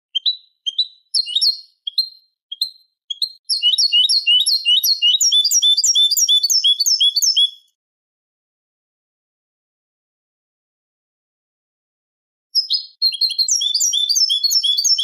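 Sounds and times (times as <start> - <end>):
goldfinch singing: 0.1 - 7.7, 12.6 - 15.0.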